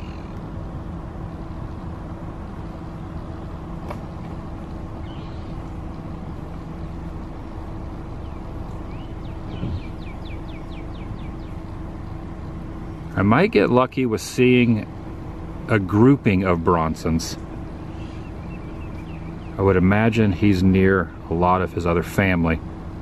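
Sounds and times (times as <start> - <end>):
low outdoor drone: 0.0 - 23.0
bird calling falling notes: 8.2 - 11.7.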